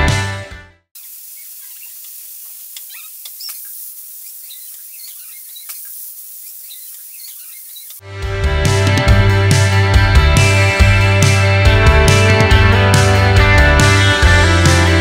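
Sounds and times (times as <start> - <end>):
pressure cooker venting steam: 1.0 - 7.1
faint sputtering crackles: 1.0 - 8.0.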